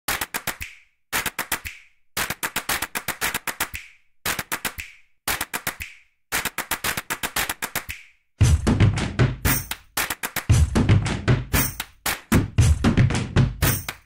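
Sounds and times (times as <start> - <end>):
bursts of sharp clicks: 0.1 - 8.2, 9.7 - 10.5
drum-led music: 8.4 - 14.0.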